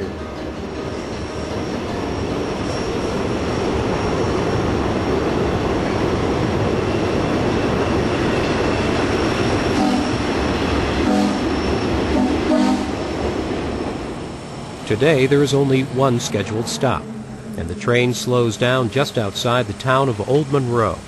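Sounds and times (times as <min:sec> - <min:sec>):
steam train running on rails: 0:00.0 - 0:21.0
train whistle toots: 0:09.8 - 0:10.3, 0:11.0 - 0:13.0.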